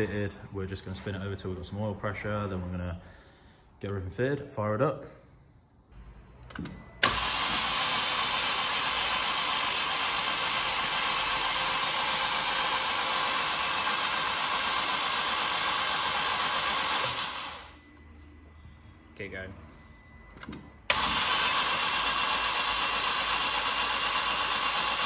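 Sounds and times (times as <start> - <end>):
engine cranking on starter motor: 6.4 - 17.8, 20.3 - 25.0.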